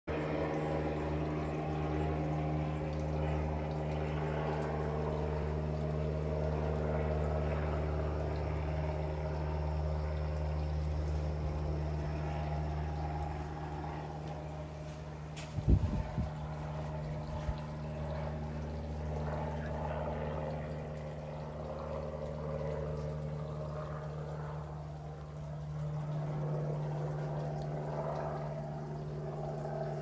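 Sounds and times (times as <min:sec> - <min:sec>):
low machine hum: 0:00.1 - 0:30.0.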